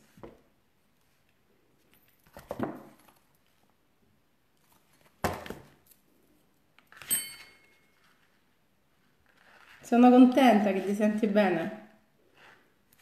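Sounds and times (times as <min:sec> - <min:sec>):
brief metallic ring: 0:07.0 - 0:07.8.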